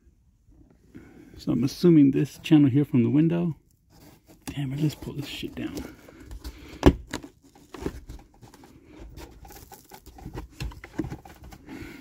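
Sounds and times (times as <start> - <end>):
rustling trim handling: 3.9 - 11.9.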